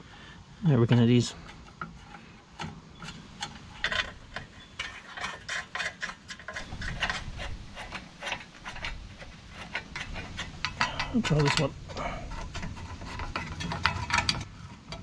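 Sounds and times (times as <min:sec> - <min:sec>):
metal parts clicking: 0:09.6 - 0:15.0.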